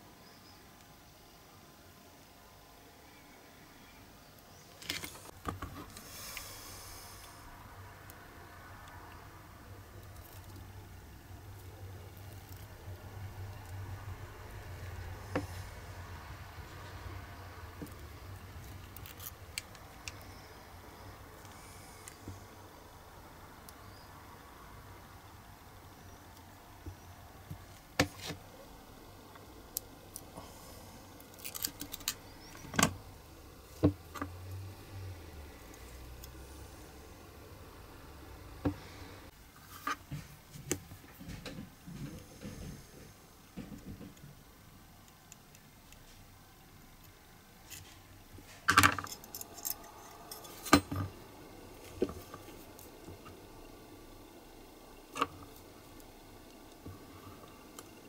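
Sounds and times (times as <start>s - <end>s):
pliers clicking on metal wire: 31.2s - 32.2s, 48.8s - 51.1s.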